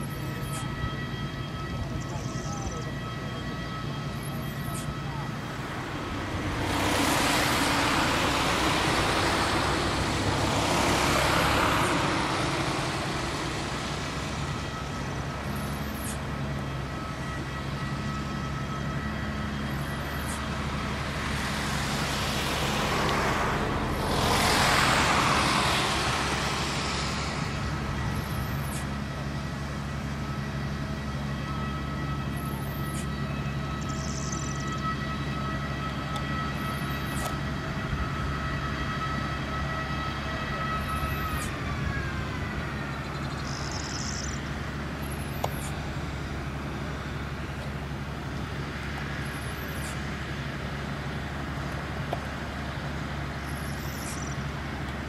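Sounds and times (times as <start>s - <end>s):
tow tractor engine humming: 0.0s - 55.0s
loud rushing noise: 5.3s - 15.3s, 21.1s - 28.4s.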